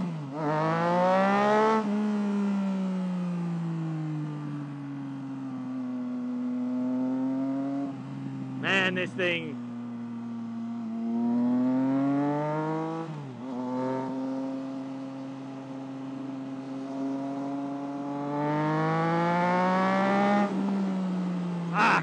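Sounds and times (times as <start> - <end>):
motorcycle engine accelerating: 0.0 - 22.0.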